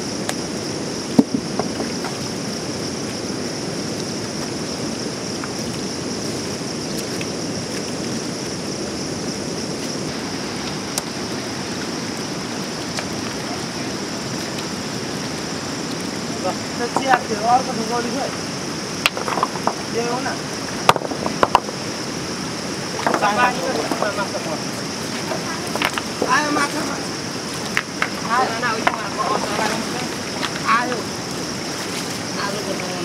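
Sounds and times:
water rushing over stones: 0.0 - 33.0.

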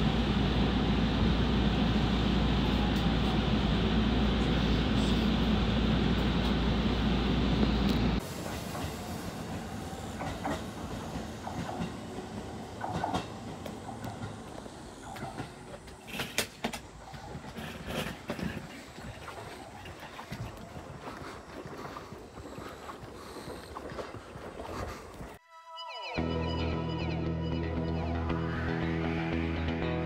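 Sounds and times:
train wheels rumbling: 0.0 - 19.7.

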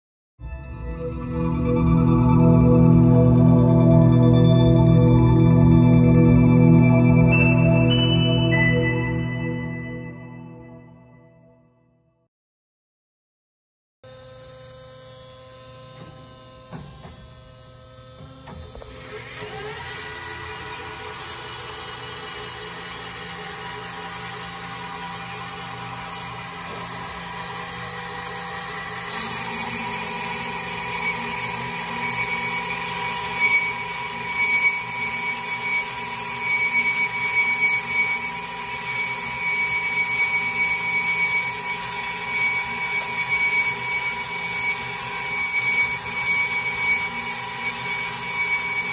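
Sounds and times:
bandsaw motor running: 14.1 - 48.9
saw blade cutting metal whine: 14.1 - 48.9.

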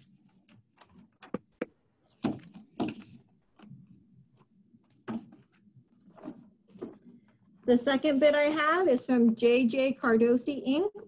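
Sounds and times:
paper rustling and shuffling: 2.1 - 9.4.

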